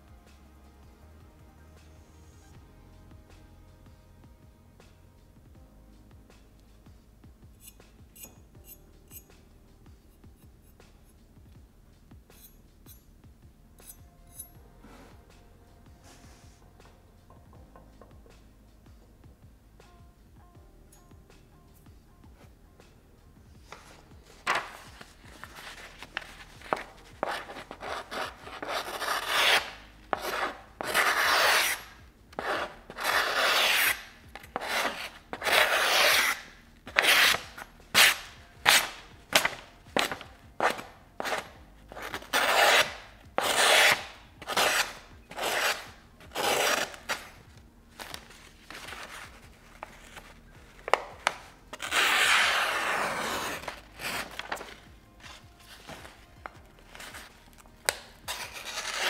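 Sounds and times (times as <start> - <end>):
knife slicing through paper: 24.4 - 47.3, 50.9 - 54.8, 57.9 - 59.0.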